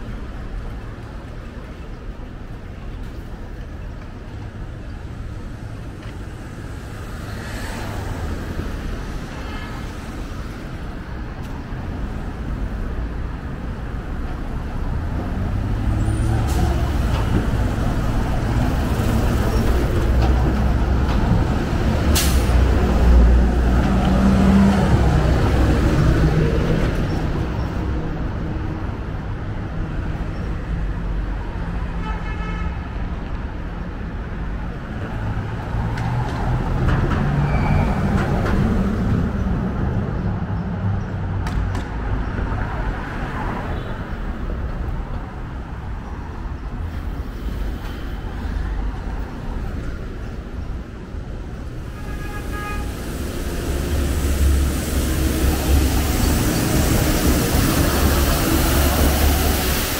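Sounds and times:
street traffic: 0.0s - 59.9s
heavy vehicle engine rumble: 8.0s - 31.5s, 44.3s - 59.9s
air brakes hissing: 22.1s - 22.7s, 51.9s - 59.9s.

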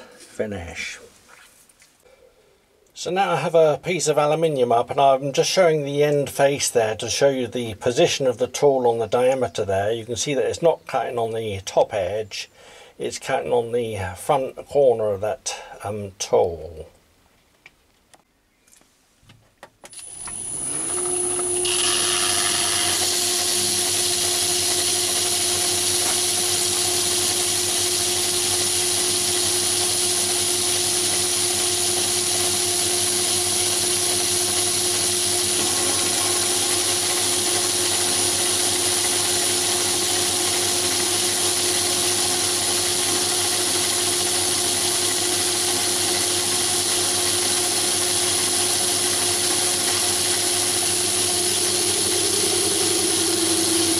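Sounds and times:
lathe motor humming and whining: 20.0s - 53.9s
tool cutting aluminium bar: 20.0s - 53.9s.

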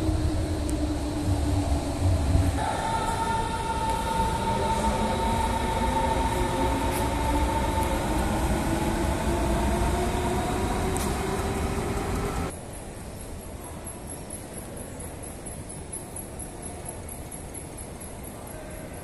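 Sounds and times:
train motor whine: 0.0s - 12.5s
electric train rumble: 0.0s - 14.3s.

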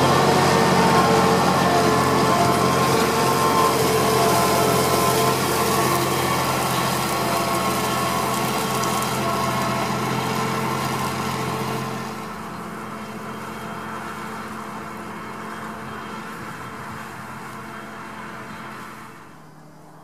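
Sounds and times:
tractor diesel engine running: 0.0s - 20.0s.

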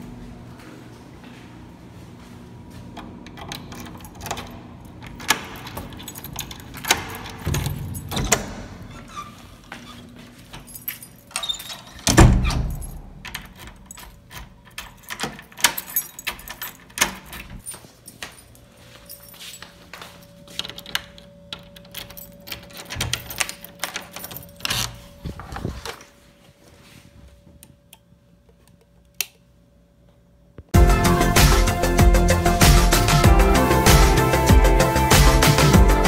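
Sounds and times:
keys jangling in a lock: 3.3s - 9.2s, 10.5s - 25.4s.

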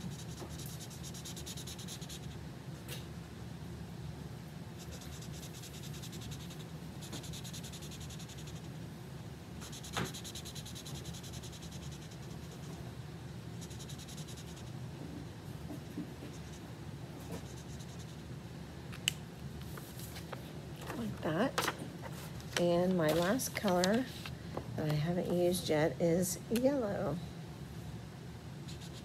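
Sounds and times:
marker scribbling on paper: 0.0s - 2.4s, 4.8s - 8.7s, 9.6s - 12.7s, 28.7s - 29.0s
low steady hum: 0.0s - 29.0s.

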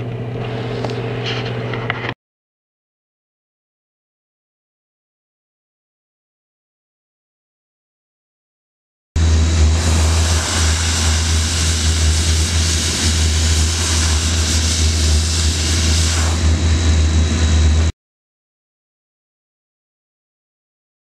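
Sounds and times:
steam hissing from nozzle: 9.6s - 16.6s.

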